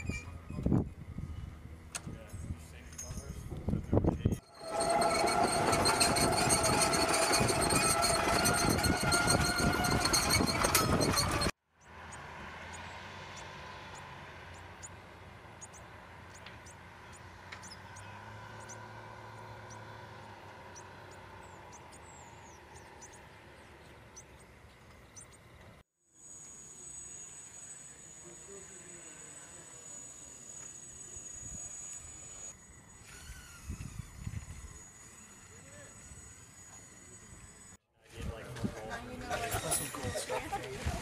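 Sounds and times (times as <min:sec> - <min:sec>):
distant vehicle engine hum: 0:00.0 - 0:41.0
engine running with high whine: 0:03.9 - 0:37.8
small chirps and clicks: 0:15.6 - 0:18.0.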